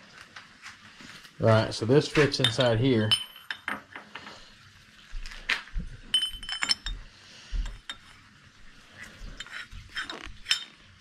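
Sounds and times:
metal parts clinking: 6.1s - 6.9s, 9.4s - 10.8s.

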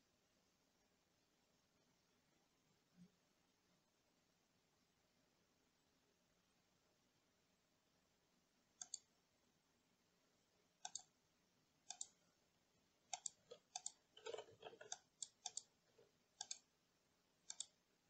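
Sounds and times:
faint mouse clicks: 8.8s - 9.1s, 10.8s - 11.2s, 11.9s - 12.2s, 13.1s - 16.7s, 17.4s - 17.8s
keyboard keystrokes: 13.1s - 15.7s.

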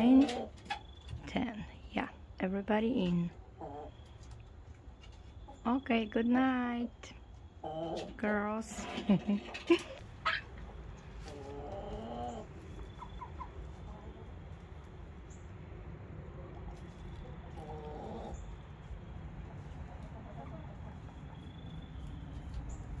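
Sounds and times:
low steady rumble: 0.9s - 23.0s
hens calling: 7.5s - 15.3s, 16.3s - 23.0s.

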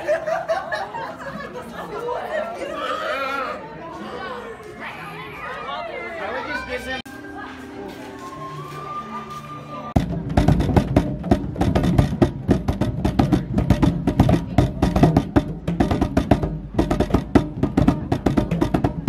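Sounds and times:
hand drums slapped: 10.0s - 19.0s.

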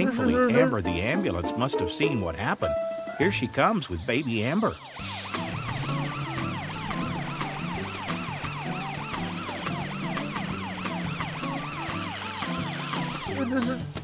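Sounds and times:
ambulance siren wailing: 3.3s - 13.7s.

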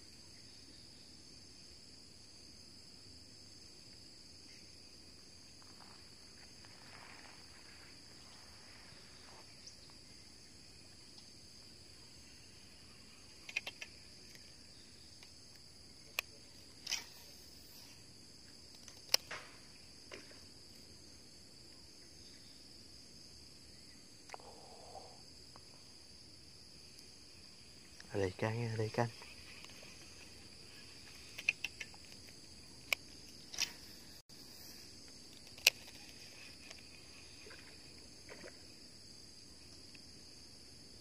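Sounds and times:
insects chorus: 0.0s - 41.0s
sharp clicks: 13.4s - 14.4s, 31.2s - 33.8s, 35.3s - 36.8s.

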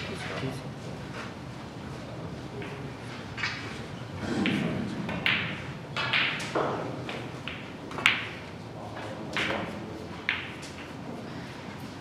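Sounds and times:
snooker balls clicking and knocking: 2.5s - 11.2s.

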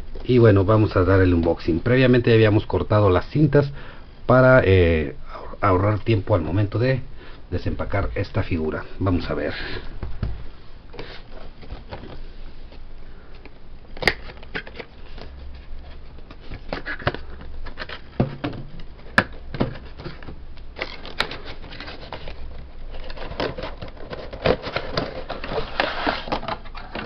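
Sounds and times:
cardboard box rustling and scraping: 19.6s - 26.8s.

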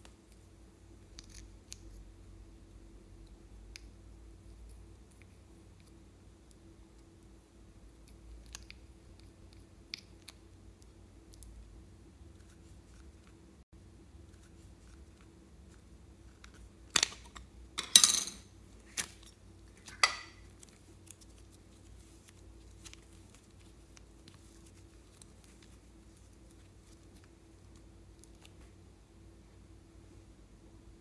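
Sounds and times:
faint soft ticks of clay handling: 3.2s - 7.3s.

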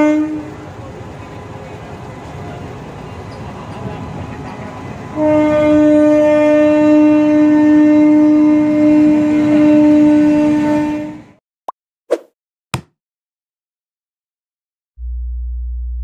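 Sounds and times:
locomotive horn blast: 0.0s - 0.7s, 5.1s - 11.4s
freight train rolling past: 0.0s - 11.4s.

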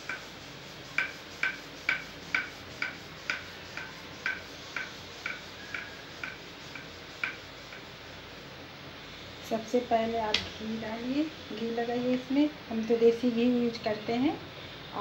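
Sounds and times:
rolling pin clicking on marble: 1.0s - 7.8s.

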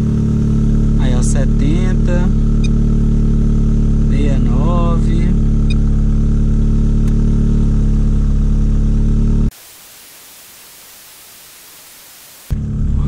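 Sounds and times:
car engine idling: 0.0s - 9.5s
steady hiss: 9.5s - 12.6s.

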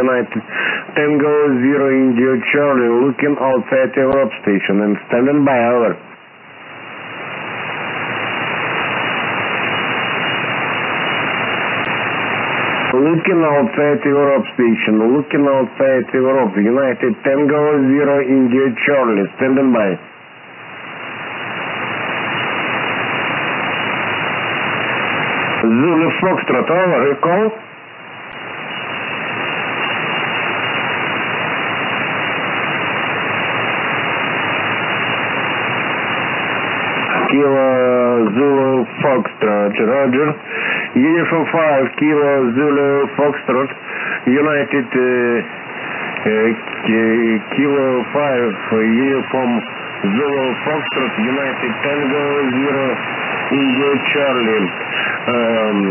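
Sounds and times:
radio static hiss: 0.0s - 55.9s.

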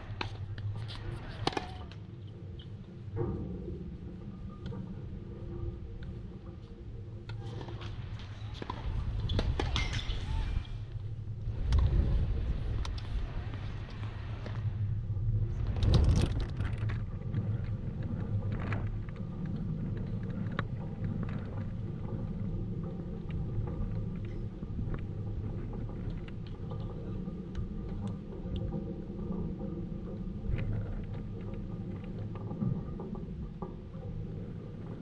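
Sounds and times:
steady low rumble: 0.0s - 35.0s.

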